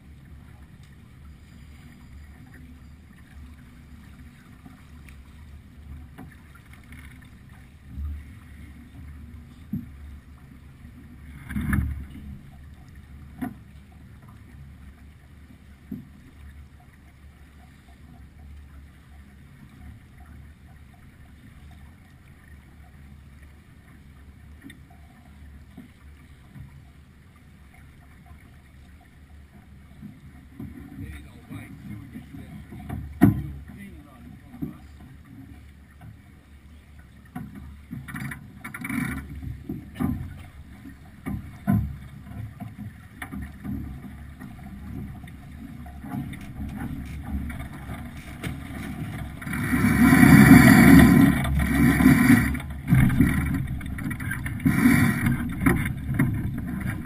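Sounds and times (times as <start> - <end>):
water moving along a hull: 0.0 - 57.0
knocks from a boat: 30.6 - 33.8, 37.3 - 40.5, 41.1 - 57.0.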